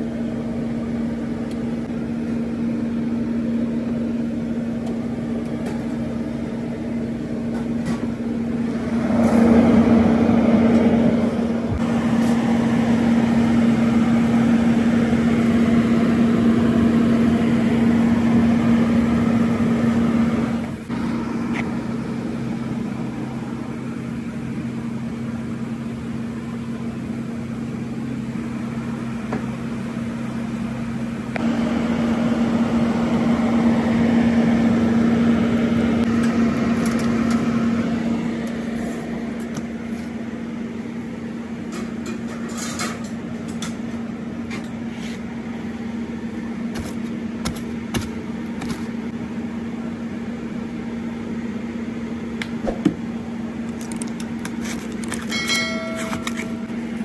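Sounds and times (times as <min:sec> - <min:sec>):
kitchen machinery hum: 0:00.0 - 0:57.0.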